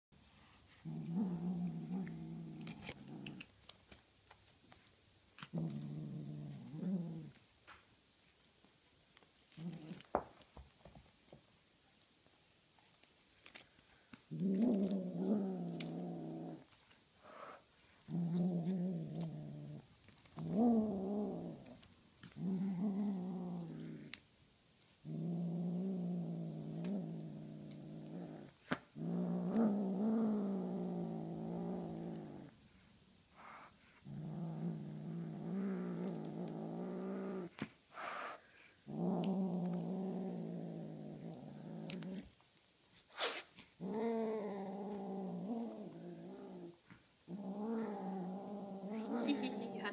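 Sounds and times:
kitten growling: 0.7s - 3.6s, 5.4s - 7.4s, 14.3s - 24.2s, 25.0s - 42.4s, 43.1s - 49.9s.

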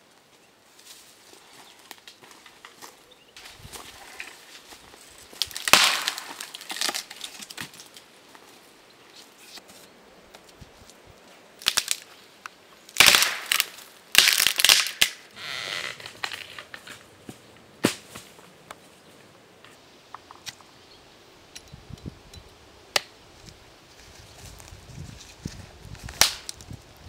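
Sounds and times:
dry branch cracking and splintering: 1.8s - 8.1s, 11.6s - 17.0s, 24.6s - 26.8s.

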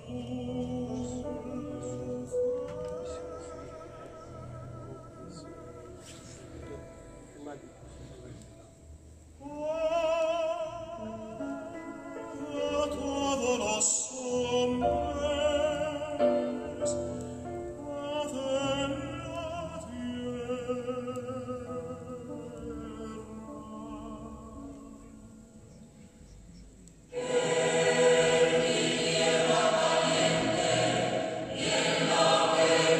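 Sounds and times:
low musical accompaniment: 0.0s - 32.9s
operatic singing with vibrato: 27.1s - 32.9s.

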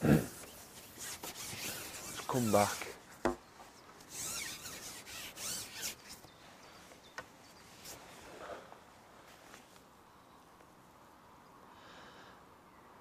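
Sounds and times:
pole sections sliding and swishing: 0.3s - 3.0s, 4.0s - 6.3s.

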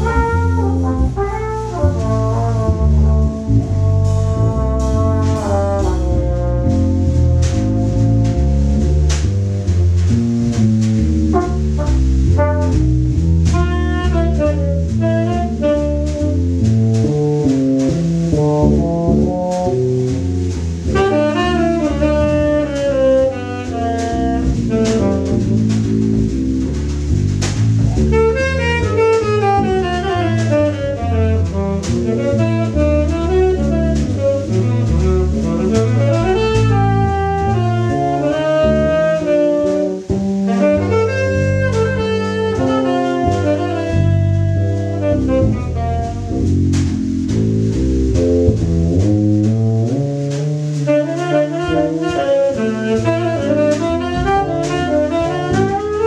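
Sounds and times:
double bass: 0.0s - 56.0s
drum kit: 0.0s - 56.0s
electric bass: 0.0s - 56.0s
trumpet: 0.0s - 56.0s
saxophone playing fast lines: 28.0s - 31.4s, 32.0s - 46.2s, 50.9s - 56.0s.

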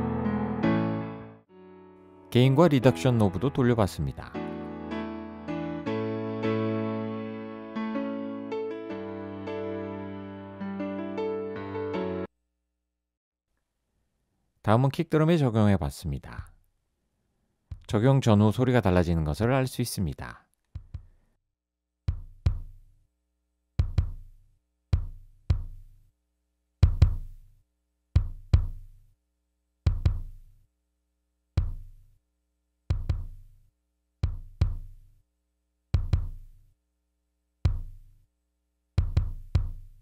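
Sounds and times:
kick drum hits: 20.8s - 21.1s, 22.1s - 22.8s, 23.8s - 24.3s, 24.9s - 25.9s, 26.8s - 27.4s, 28.2s - 29.0s, 29.9s - 30.4s, 31.6s - 32.0s, 32.9s - 33.5s, 34.2s - 35.1s, 36.0s - 36.6s, 37.7s - 38.1s, 39.0s - 40.0s.

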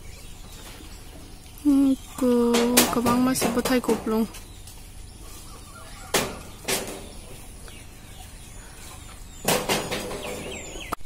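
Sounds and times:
leaves rustling: 0.0s - 11.0s
pole knocking tree branches: 2.3s - 4.5s, 6.0s - 7.4s, 9.4s - 11.0s.

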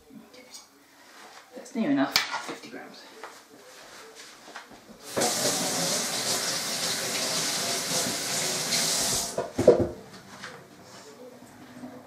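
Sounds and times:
tap water running into sink: 5.1s - 9.5s.

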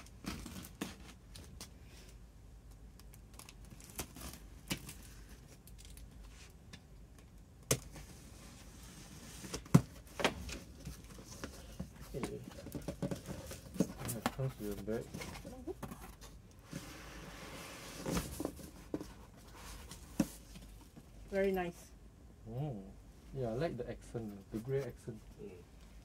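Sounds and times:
cardboard rustling: 7.9s - 21.0s.

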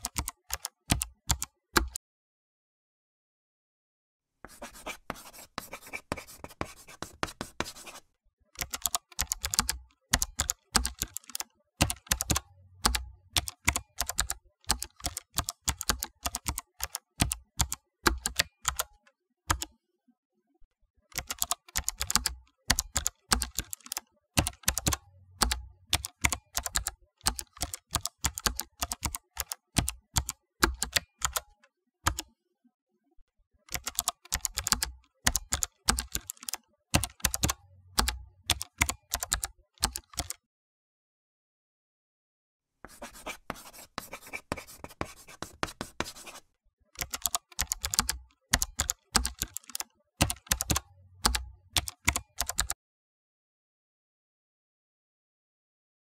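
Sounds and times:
keyboard typing: 0.0s - 2.0s, 4.5s - 8.0s, 8.6s - 19.7s, 21.1s - 32.3s, 33.7s - 40.4s, 42.9s - 46.4s, 47.0s - 52.8s.

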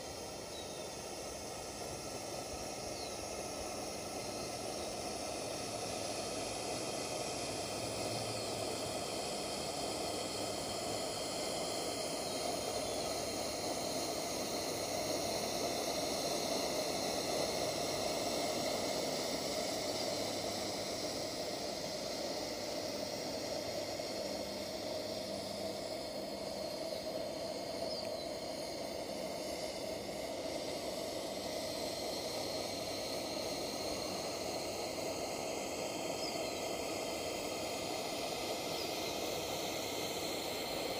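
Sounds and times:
pressure lantern hissing: 0.0s - 40.9s.

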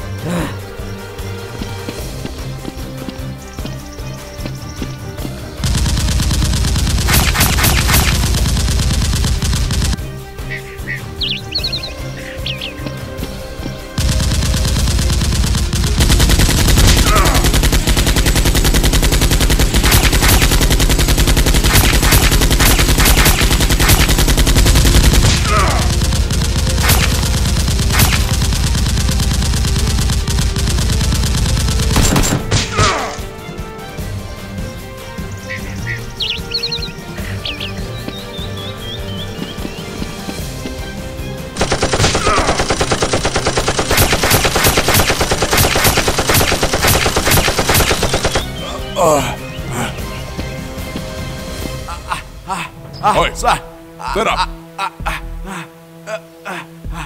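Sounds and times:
automatic gunfire: 5.6s - 10.0s, 14.0s - 33.0s, 41.6s - 48.6s
single gunshots: 5.6s - 10.0s, 19.4s - 20.8s, 21.6s - 30.1s, 30.8s - 33.3s, 41.6s - 48.6s.

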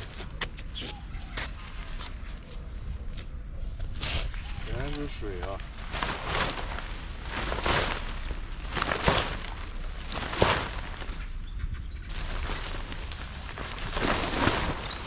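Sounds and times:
rustling of gear being packed: 4.0s - 11.3s, 12.1s - 15.0s.

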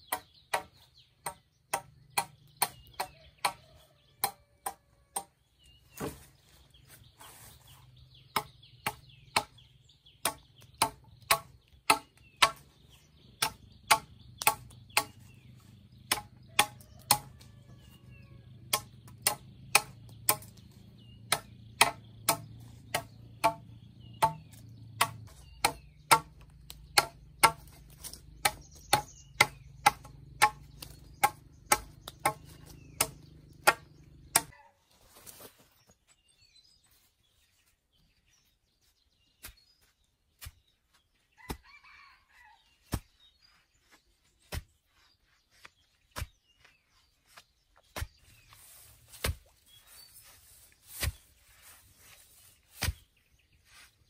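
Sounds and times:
wood chopping strikes: 0.0s - 3.6s, 4.2s - 5.4s, 8.3s - 9.6s, 10.2s - 12.8s, 13.4s - 15.4s, 16.0s - 17.5s, 18.7s - 34.5s, 42.8s - 43.2s, 45.5s - 49.7s, 50.8s - 51.4s, 52.7s - 53.2s.

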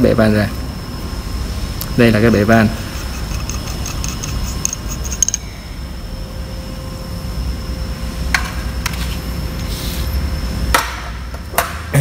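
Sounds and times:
steady low hum: 0.0s - 12.0s
sharp metal clicks: 3.0s - 5.4s.

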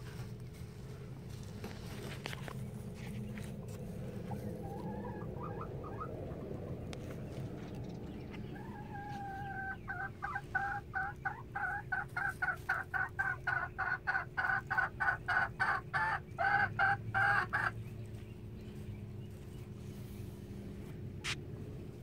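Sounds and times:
hen cackling: 4.1s - 6.9s, 8.3s - 17.8s.

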